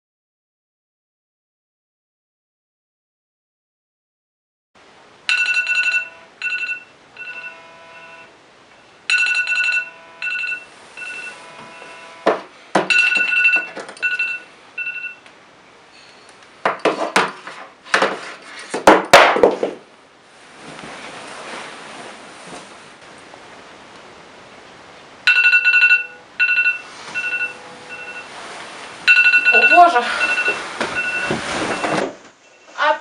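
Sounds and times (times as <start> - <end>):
phone alarm chiming melody: 5.3 - 8.3, 9.1 - 12.2, 12.9 - 15.2, 25.3 - 28.3, 29.1 - 31.9
bedding rustling and thumping: 16.7 - 23.0, 29.8 - 32.4.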